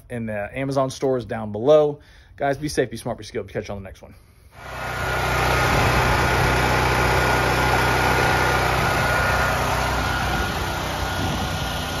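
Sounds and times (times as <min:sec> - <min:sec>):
generator engine running: 0:04.6 - 0:12.0
high whine: 0:07.2 - 0:12.0.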